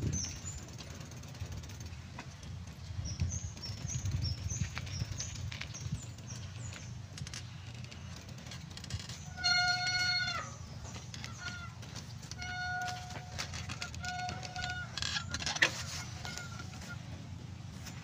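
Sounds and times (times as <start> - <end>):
steady low rumble: 0.0 - 18.0
footsteps on paved path: 1.8 - 18.0
small bird chirping: 2.9 - 8.2.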